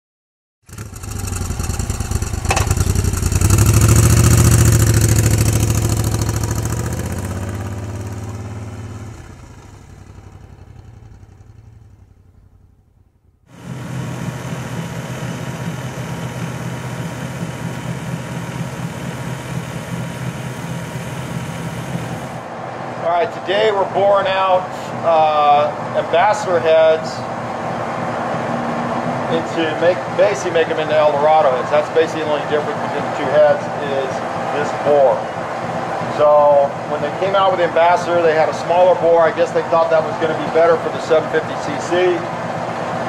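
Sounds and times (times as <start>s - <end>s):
motorcycle engine running: 0.6s - 22.6s, 29.1s - 43.0s
steady mechanical hum: 13.5s - 43.0s.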